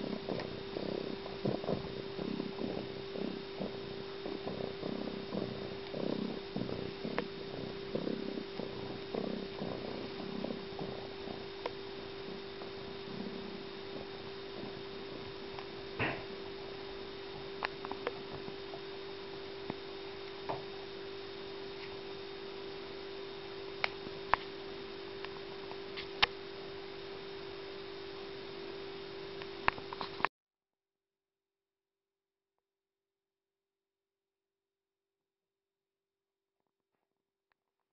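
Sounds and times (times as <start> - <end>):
low electrical hum: 0.0 - 30.3.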